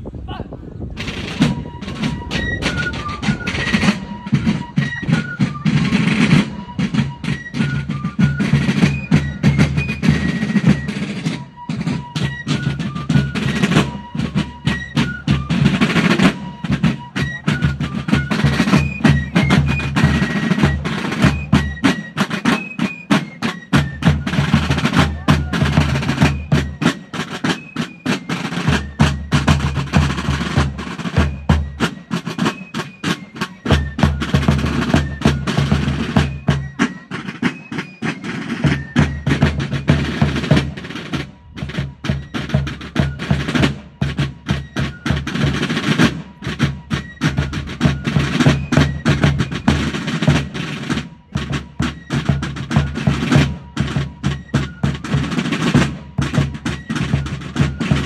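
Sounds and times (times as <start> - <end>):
field drums beating: 0.0 - 58.0
fifes playing melody: 1.1 - 8.9.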